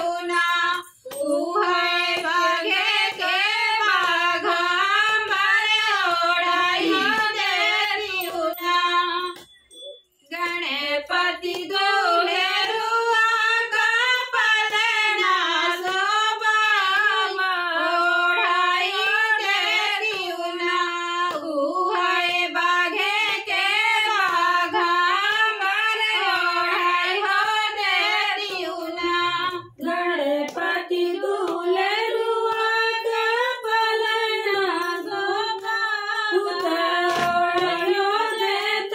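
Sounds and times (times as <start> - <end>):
women singing unaccompanied: 0.0 - 9.5, 10.3 - 38.9.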